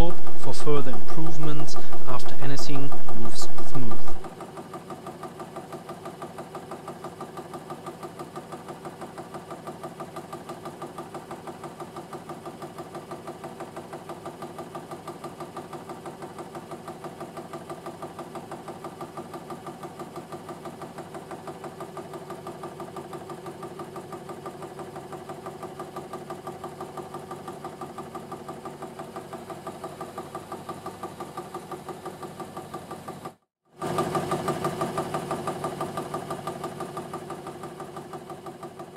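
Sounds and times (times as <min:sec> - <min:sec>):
engine mechanical beat: 0:00.0 - 0:04.3.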